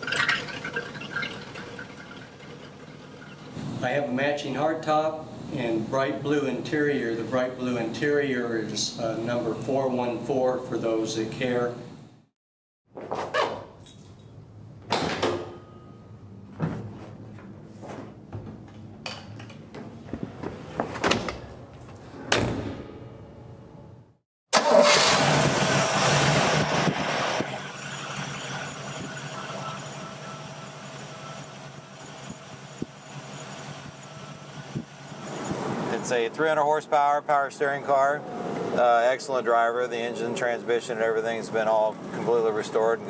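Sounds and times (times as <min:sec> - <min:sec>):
car engine starting and idling: 0:24.6 - 0:35.6.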